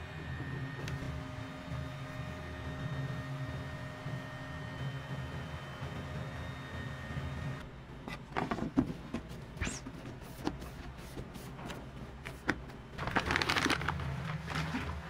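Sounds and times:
plastic bag crinkling: 13.0s - 15.0s.

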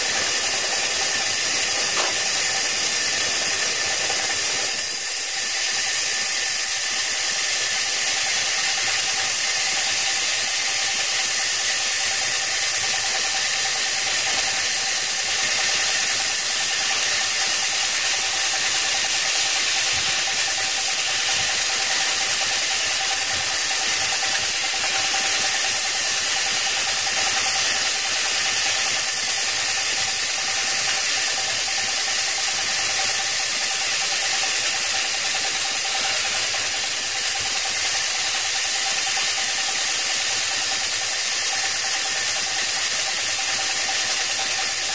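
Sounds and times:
sawmill cutting a log: 0.0s - 44.9s
steady high whine: 0.0s - 44.9s.

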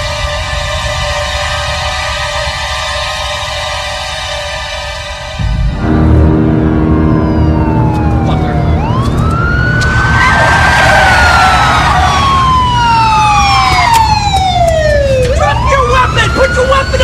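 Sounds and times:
police sirens wailing: 0.0s - 17.0s
low rumble: 4.7s - 15.7s.

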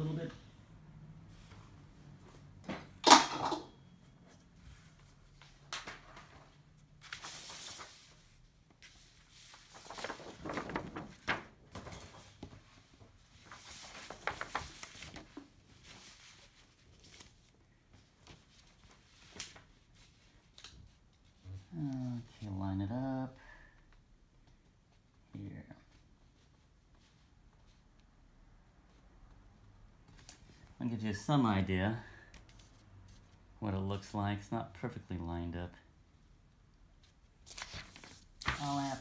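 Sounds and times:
paper rustling and crinkling: 4.8s - 21.4s, 37.0s - 39.0s.

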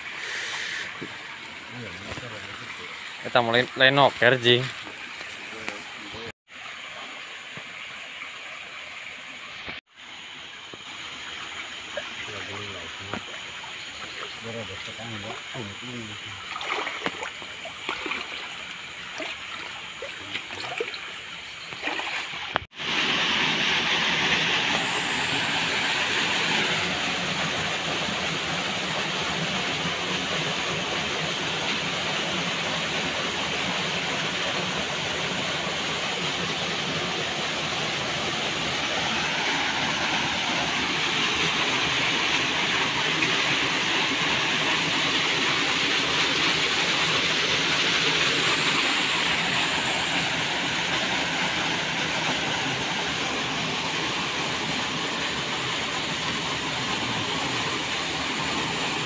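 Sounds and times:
water lapping with small splashes: 11.1s - 22.8s
river water rushing: 16.4s - 20.9s, 21.8s - 59.0s.

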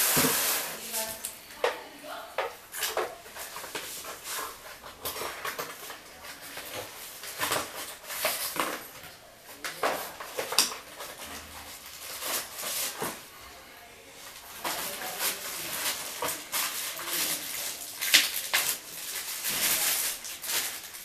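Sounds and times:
plastic and cardboard rustling: 0.0s - 1.2s, 2.4s - 21.0s.

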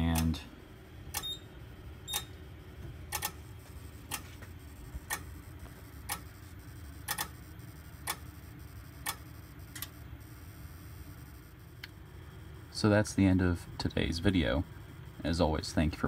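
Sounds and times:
strobe clicks: 3.1s - 12.0s.

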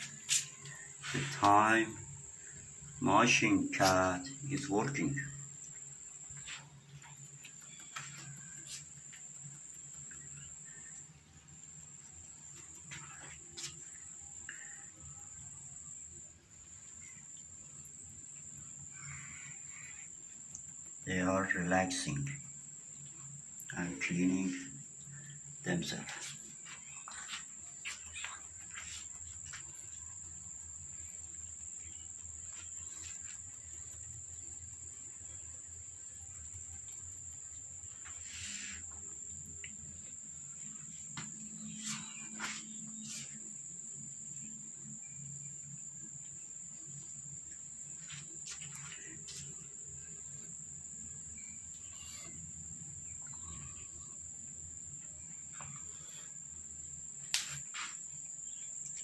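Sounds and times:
high-pitched insect trill: 0.0s - 59.0s.

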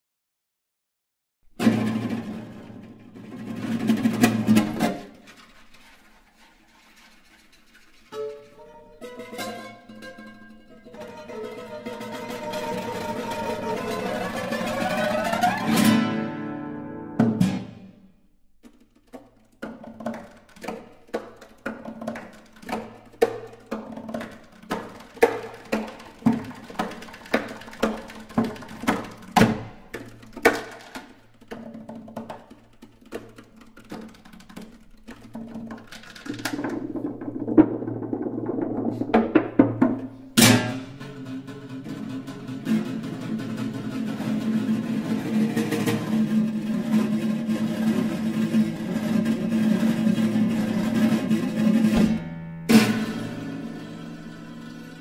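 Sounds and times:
rubbing and drumming on guitars: 1.6s - 16.4s, 18.6s - 55.0s
hands knocking on guitar bodies: 17.2s - 17.8s, 18.6s - 41.3s.

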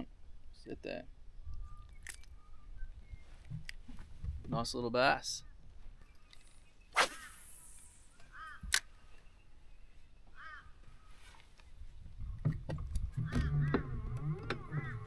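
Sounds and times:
bird calls: 1.4s - 3.7s, 5.3s - 11.5s, 13.1s - 15.0s.

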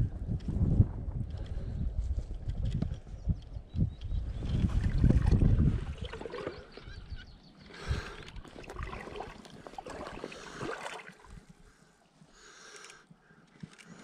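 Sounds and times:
river water sloshing and gurgling: 4.4s - 11.7s.

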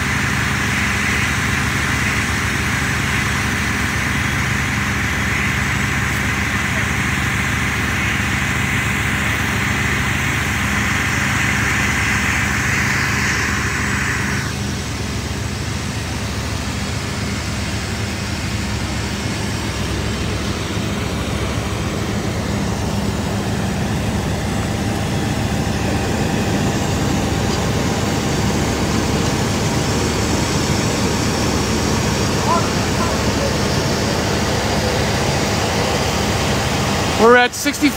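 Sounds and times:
fire engine droning: 0.0s - 37.9s.

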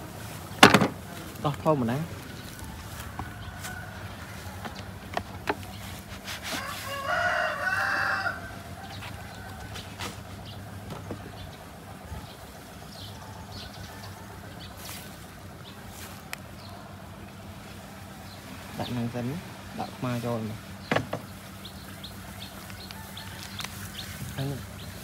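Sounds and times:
rooster crowing: 2.5s - 5.2s, 6.4s - 10.7s, 13.0s - 15.2s, 22.8s - 24.4s.

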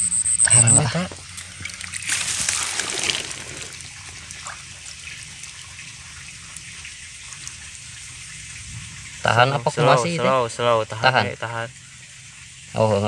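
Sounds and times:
hands stirring water: 1.2s - 5.9s.

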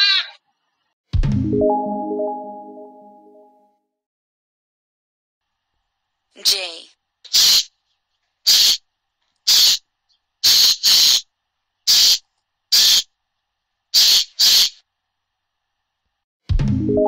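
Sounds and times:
blue jay harsh calls: 7.3s - 7.7s, 8.5s - 8.8s, 9.5s - 9.8s, 10.4s - 11.3s, 11.9s - 13.1s, 14.0s - 14.8s.

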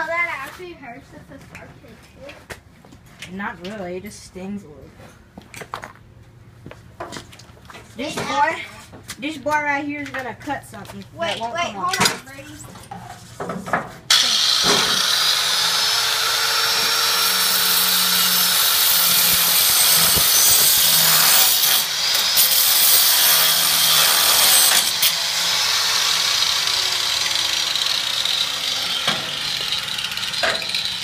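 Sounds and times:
angle grinder cutting metal: 14.1s - 31.0s.

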